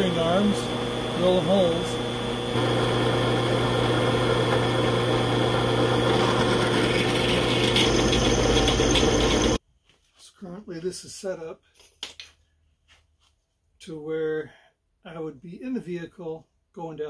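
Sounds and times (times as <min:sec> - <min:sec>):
drill bit cutting steel: 0:00.0 - 0:09.6
drill press motor humming: 0:00.0 - 0:09.6.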